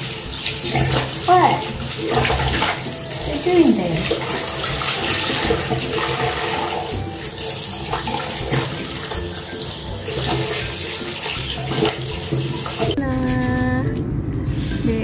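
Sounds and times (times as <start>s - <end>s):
tap running into sink: 0.0s - 3.4s, 4.0s - 13.0s
wet fabric sloshing: 0.0s - 9.2s.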